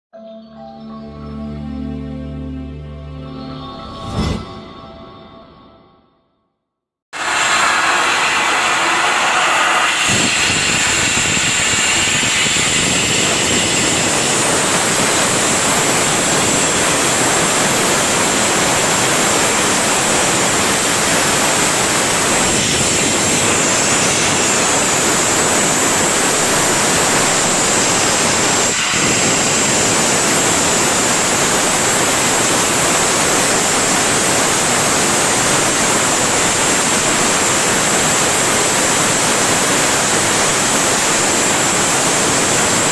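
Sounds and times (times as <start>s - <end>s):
gas burner flame hissing: 7.2s - 42.9s.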